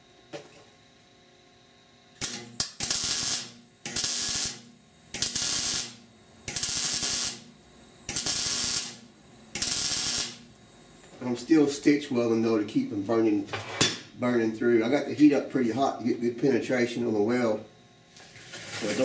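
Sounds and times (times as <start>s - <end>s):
welding arc crackling: 2.2s - 10.6s, 18.2s - 19.0s.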